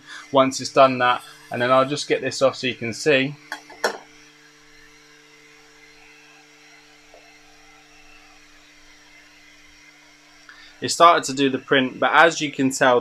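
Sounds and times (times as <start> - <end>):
cooling fans humming: 0.0 - 13.0.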